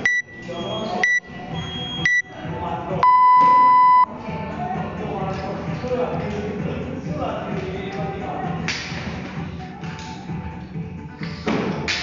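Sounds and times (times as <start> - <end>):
short high beeps: 0.0 - 1.2, 1.8 - 2.3, 3.0 - 4.1
long low beep: 0.0 - 2.3, 3.0 - 4.1.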